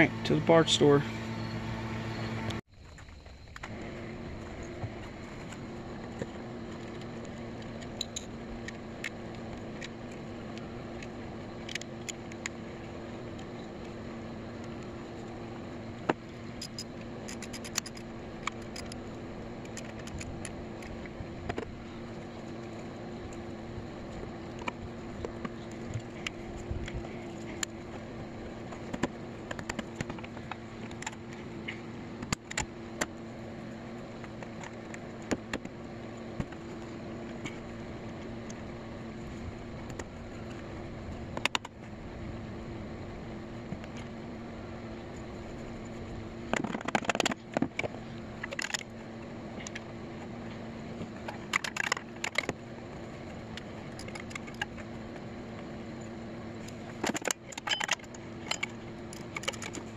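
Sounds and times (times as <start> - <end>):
vehicle engine droning: 0.0 - 2.6.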